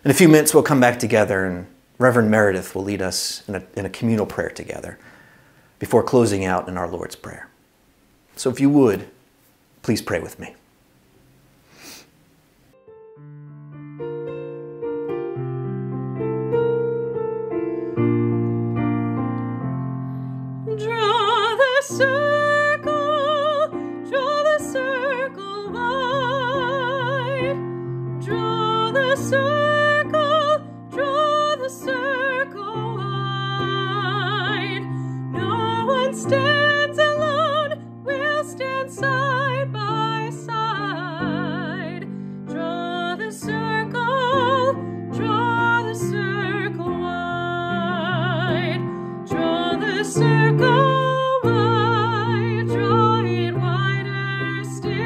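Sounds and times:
soft piano chords: 12.7s - 55.0s
person singing with vibrato: 20.7s - 55.0s.

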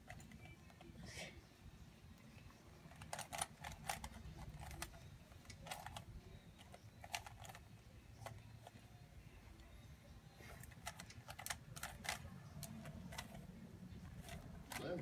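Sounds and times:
plastic puzzle cube clicking: 2.9s - 8.8s, 10.6s - 13.4s, 14.0s - 14.9s.

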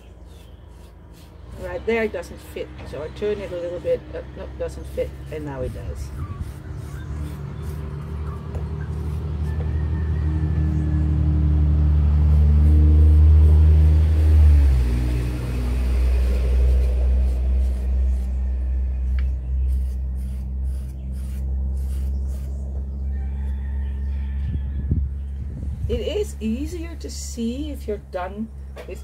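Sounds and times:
engine running loud and low: 0.0s - 29.0s.

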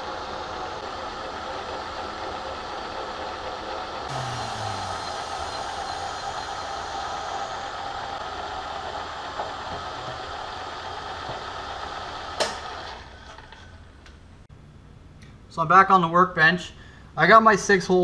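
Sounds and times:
milling machine humming whine: 0.0s - 13.8s.

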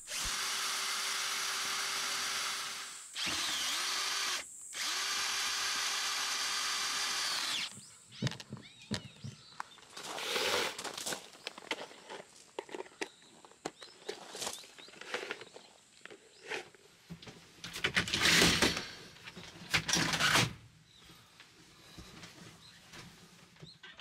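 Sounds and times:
cordless drill motor whining: 0.0s - 7.9s.

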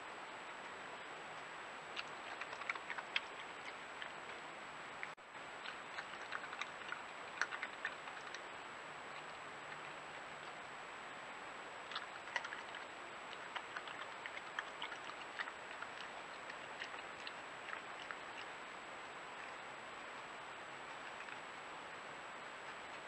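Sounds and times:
camera hiss with high whine: 0.0s - 23.0s
animal crunching peanuts: 1.9s - 4.4s, 5.0s - 10.8s, 11.8s - 21.6s.

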